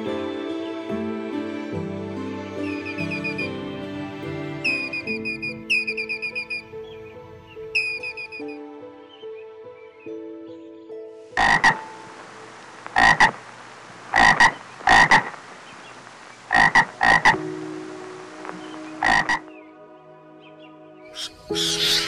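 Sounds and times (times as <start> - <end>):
faint background music: 0.0 - 22.0
toad croaking: 4.7 - 6.7, 7.8 - 8.6, 11.4 - 19.5, 21.2 - 22.0.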